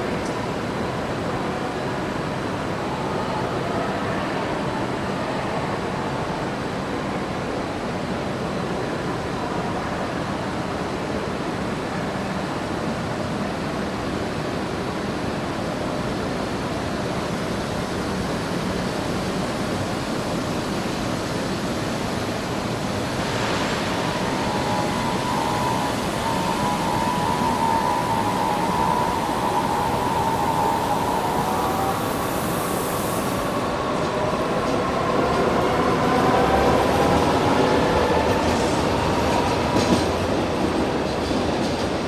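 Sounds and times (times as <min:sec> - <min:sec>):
train ventilation rushing hum: 0:00.0 - 0:42.0
steady high whine: 0:22.5 - 0:37.0.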